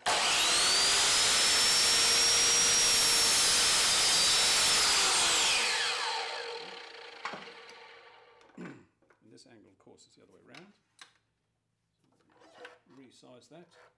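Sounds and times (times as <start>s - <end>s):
mitre saw cutting wood: 0.0s - 8.4s.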